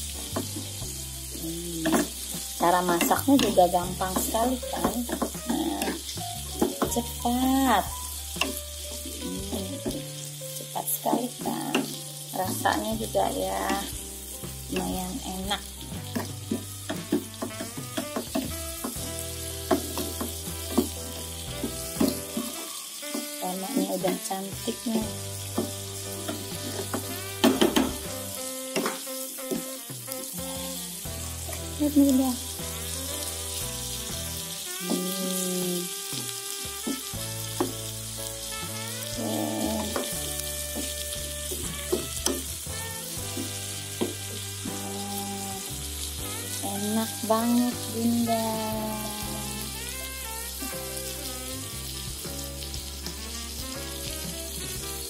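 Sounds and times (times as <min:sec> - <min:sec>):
background music: 0:00.0 - 0:55.0
vegetables sizzling in a wok: 0:00.0 - 0:55.0
spatula scraping and clacking on pan: 0:08.3 - 0:10.3, 0:16.0 - 0:29.8, 0:36.1 - 0:44.6.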